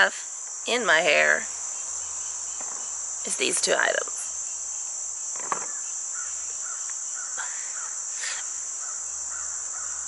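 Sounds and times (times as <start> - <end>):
insects droning: 0.0 - 10.0
faint bird calls: 5.3 - 10.0.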